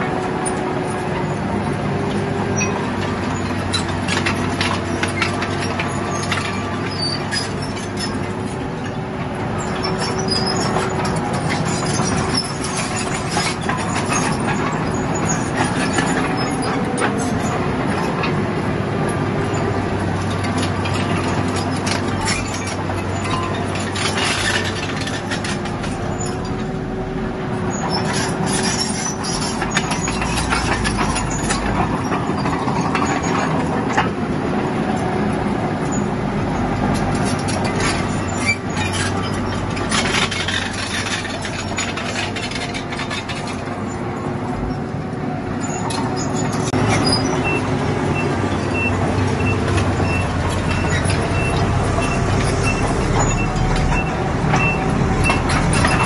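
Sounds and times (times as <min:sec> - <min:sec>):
bulldozer diesel engine: 0:00.0 - 0:56.0
tracks clanking and stone knocking: 0:00.0 - 0:56.0.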